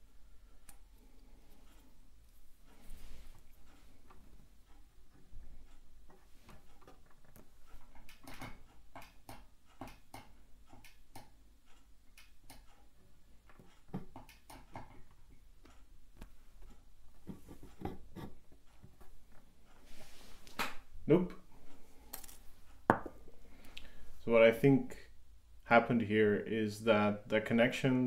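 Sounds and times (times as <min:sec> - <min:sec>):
clicks and light taps: 0:03.4 - 0:19.5.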